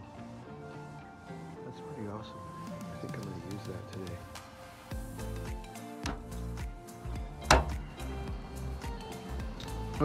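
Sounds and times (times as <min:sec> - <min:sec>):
instrumental music with steady beat: 0:02.7 - 0:10.0.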